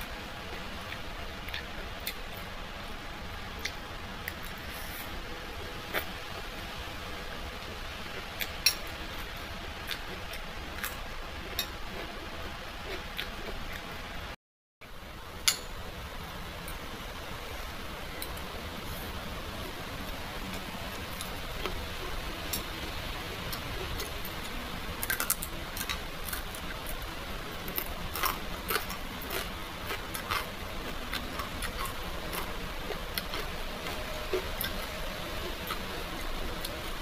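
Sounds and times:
steady hiss: 0:14.8 - 0:37.0.

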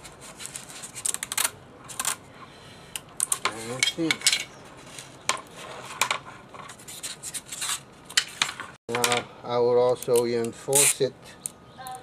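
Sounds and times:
tape and plastic clicks and crackles: 0:00.5 - 0:02.2.

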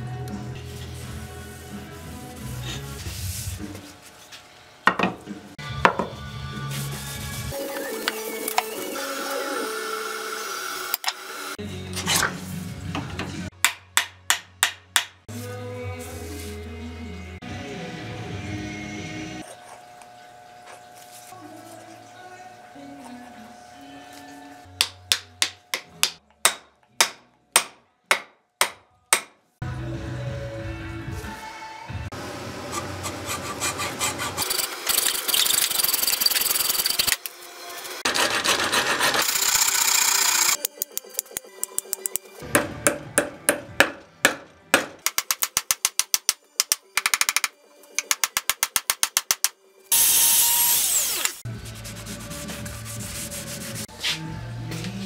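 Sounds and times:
hammer tapping steel wedge: 0:13.6 - 0:15.2, 0:24.8 - 0:29.4
hammer knocking wooden wedge: 0:24.8 - 0:29.4, 0:42.5 - 0:49.5.

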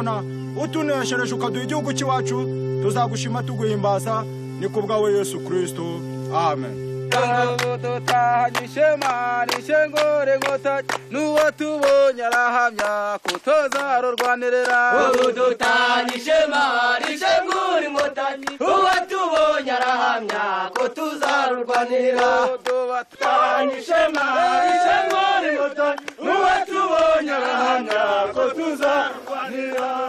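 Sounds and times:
men chanting in unison: 0:11.2 - 0:30.0.

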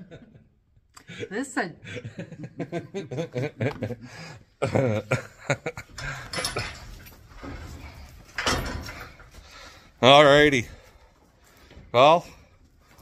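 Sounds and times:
woman laughing: 0:01.1 - 0:04.0
man laughing: 0:01.1 - 0:06.7.

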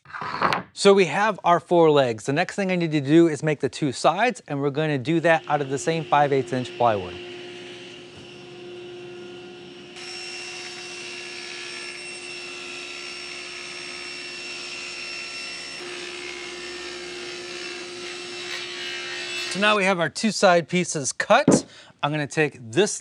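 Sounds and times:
table saw cutting plywood: 0:05.0 - 0:19.6.

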